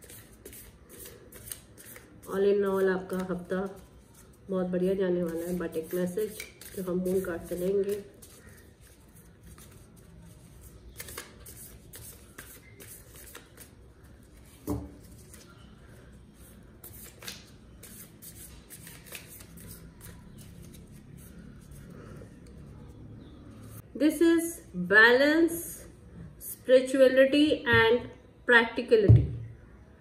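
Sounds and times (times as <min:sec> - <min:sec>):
cards being shuffled: 0:00.0 - 0:02.2, 0:05.3 - 0:09.9, 0:10.8 - 0:15.5, 0:16.8 - 0:21.3.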